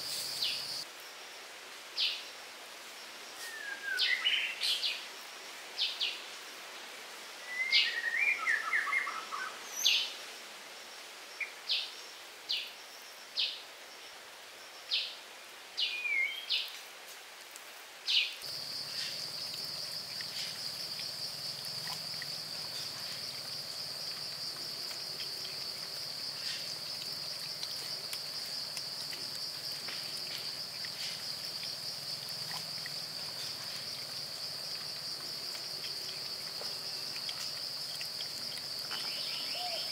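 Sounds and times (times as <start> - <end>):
bird chirping: 38.2 - 39.9.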